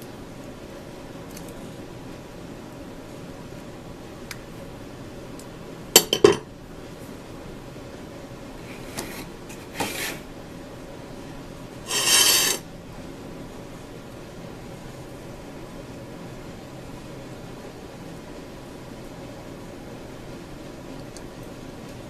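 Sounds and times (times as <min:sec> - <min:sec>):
rasping scrape: 0:11.9 - 0:12.6.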